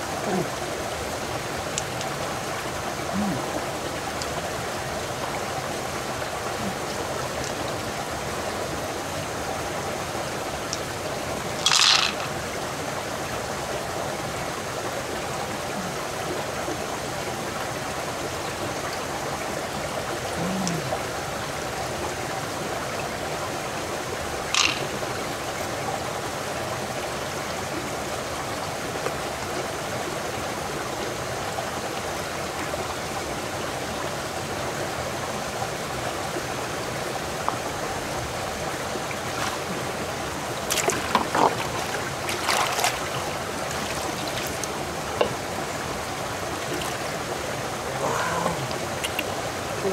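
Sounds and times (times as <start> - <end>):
river flowing over rocks: 0.0 - 49.9.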